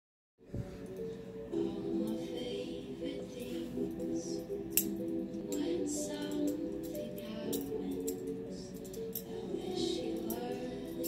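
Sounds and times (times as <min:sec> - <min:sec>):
background music: 0:00.4 - 0:11.0
metallic clicks of knife handles: 0:04.7 - 0:05.6, 0:06.2 - 0:09.3.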